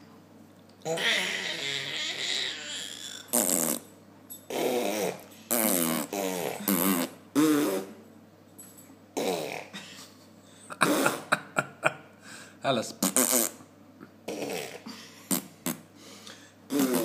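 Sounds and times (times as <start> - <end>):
baby blowing raspberries: 0.8 - 3.9, 4.5 - 8.0, 13.0 - 13.6, 14.3 - 15.9, 16.7 - 17.0.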